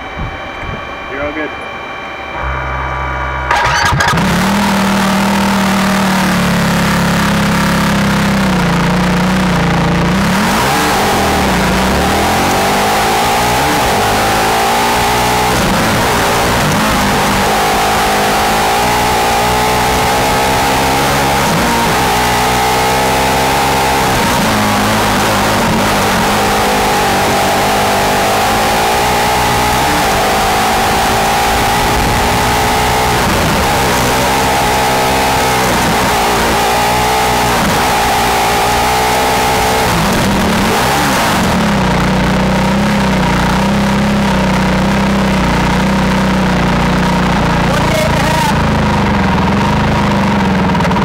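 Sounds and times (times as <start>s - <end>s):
race car engine revving: 0.0s - 51.0s
wind and road noise: 7.2s - 44.6s.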